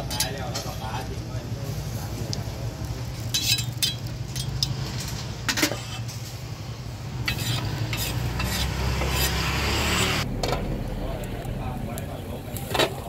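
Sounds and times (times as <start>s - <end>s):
metal scraping steel pan: 3.2s - 6.4s, 7.2s - 10.6s.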